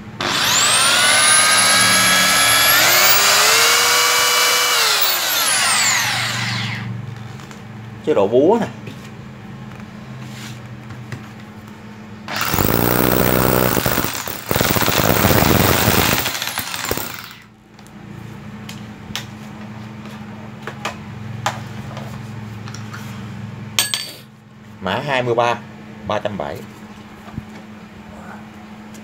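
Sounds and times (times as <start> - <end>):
hammer drill running: 0.2 - 6.8, 12.3 - 17.4.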